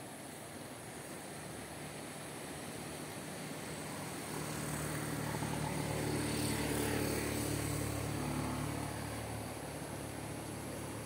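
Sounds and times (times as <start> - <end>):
wind: 0.0 - 11.0
engine drone passing by: 2.5 - 11.0.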